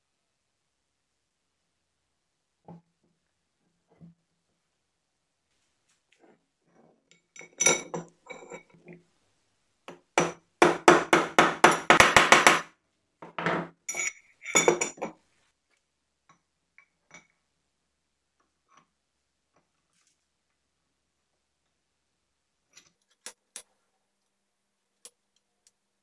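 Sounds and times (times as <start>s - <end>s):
metal knocks and clinks: 13.2s - 15.2s.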